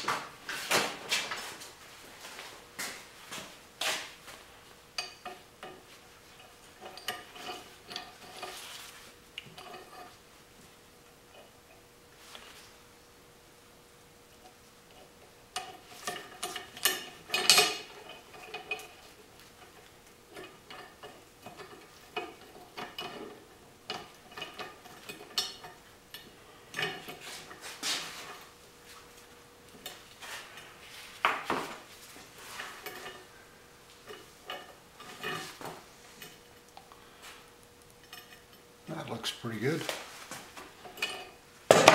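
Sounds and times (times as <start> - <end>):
steel parts clinking and scraping: 5.0 - 10.2, 15.6 - 28.5, 29.8 - 33.3, 34.0 - 36.7, 37.9 - 41.9.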